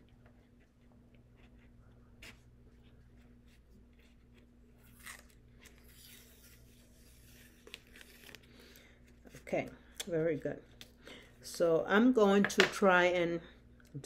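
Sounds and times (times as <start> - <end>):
faint steady hum: 0.0 - 14.0
tape peeling rustle: 2.2 - 9.4.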